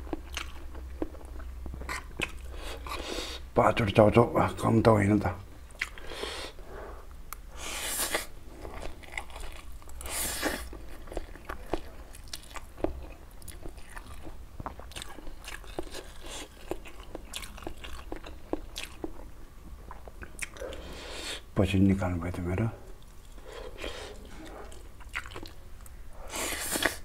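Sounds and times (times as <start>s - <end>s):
wet chewing with mouth clicks: 0.0s - 3.0s, 5.7s - 6.1s, 7.3s - 21.0s, 22.9s - 27.0s
noodle slurping: 26.3s - 27.0s.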